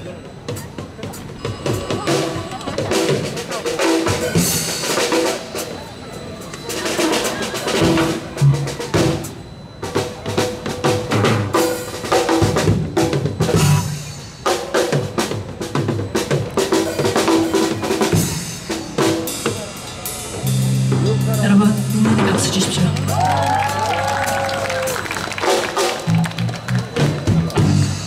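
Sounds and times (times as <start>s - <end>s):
busy drumming on drum kit: 0.0s - 28.0s
electric bass guitar notes: 12.8s - 14.2s, 20.3s - 25.2s, 26.0s - 28.0s.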